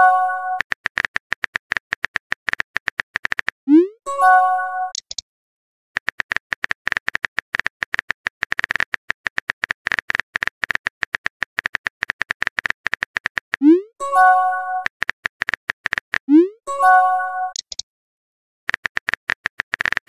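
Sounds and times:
message arrival chime: 0.0s - 0.6s, 13.8s - 14.9s, 16.7s - 17.6s
phone keyboard typing clicks: 0.5s - 3.6s, 4.9s - 5.2s, 6.0s - 13.7s, 14.8s - 16.3s, 17.5s - 17.8s, 18.7s - 20.0s.

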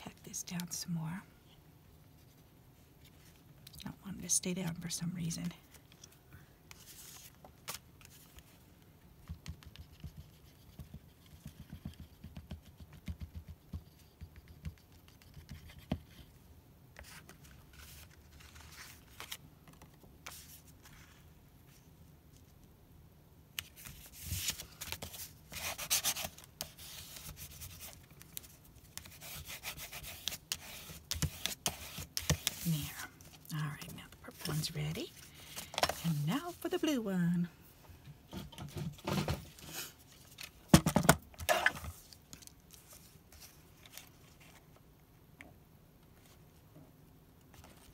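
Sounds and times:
paper rustling: 17.0s - 21.8s.

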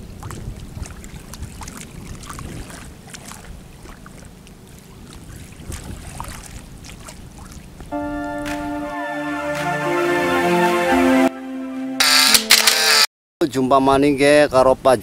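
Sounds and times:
wind rumble on microphone: 0.0s - 4.0s, 5.0s - 7.9s
small splashes and clicks: 0.0s - 7.9s
pond water lapping: 0.0s - 8.7s.

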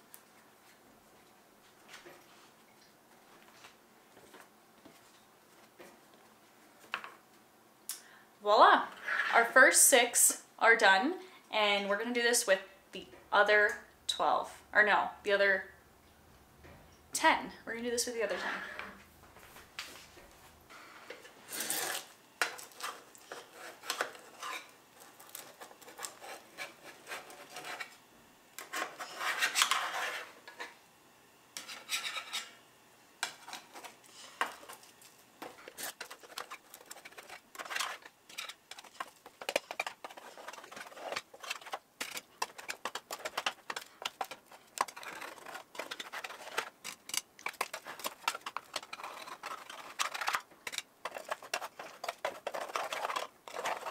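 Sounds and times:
spatula scraping metal pan: 8.9s - 9.6s, 18.2s - 19.0s, 21.5s - 28.0s, 28.6s - 30.7s, 31.6s - 32.6s, 35.4s - 53.9s.

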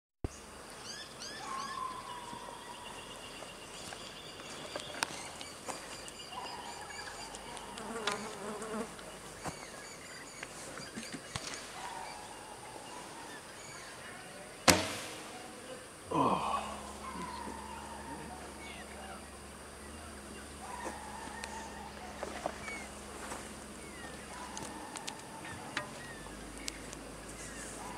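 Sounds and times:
flies buzzing: 3.8s - 9.8s, 10.4s - 27.9s
bow snapping as shot: 14.6s - 15.4s.

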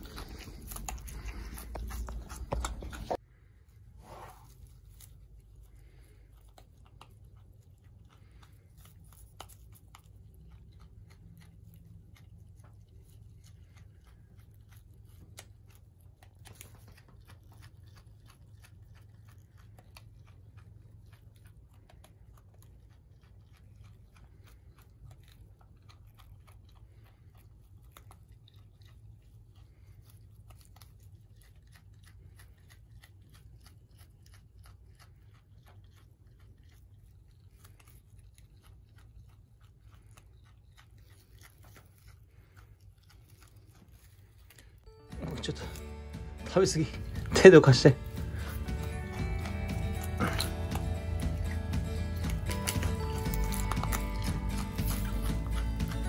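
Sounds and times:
wallaby chewing shoots: 0.0s - 56.0s
low hum: 44.5s - 56.0s.

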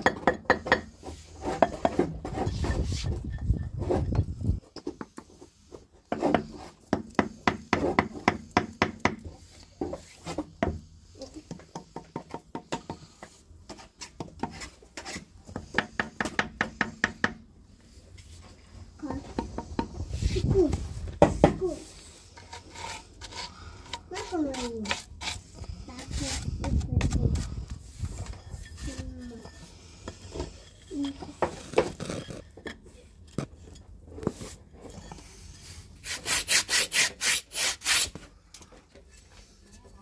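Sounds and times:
hand tool striking wood: 6.1s - 9.3s, 14.2s - 17.4s.

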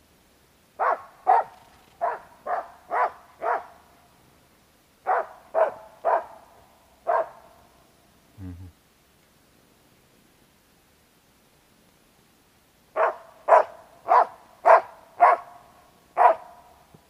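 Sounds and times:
dog barking: 0.8s - 3.8s, 5.0s - 6.4s, 7.0s - 7.5s, 13.0s - 15.6s, 16.2s - 16.6s.

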